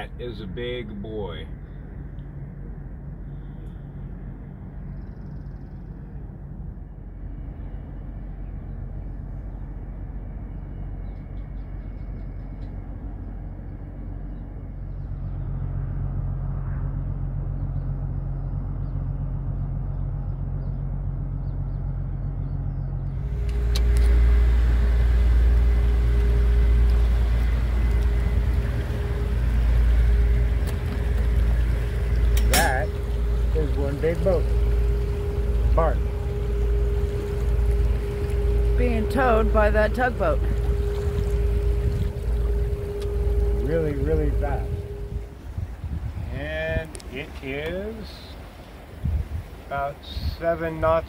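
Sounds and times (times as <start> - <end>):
boat engines droning: 0.0 - 51.0
loud engine rumble: 0.0 - 51.0
wind and water hiss: 23.2 - 51.0.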